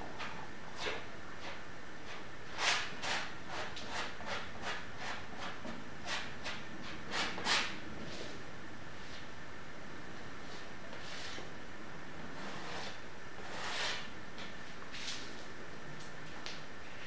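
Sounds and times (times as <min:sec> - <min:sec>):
palette knife scraping paint on canvas: 0:12.4 - 0:14.1.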